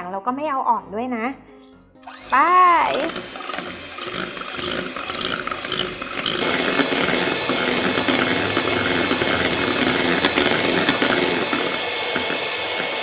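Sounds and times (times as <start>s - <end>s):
electric mixer whisking: 2.0s - 13.0s.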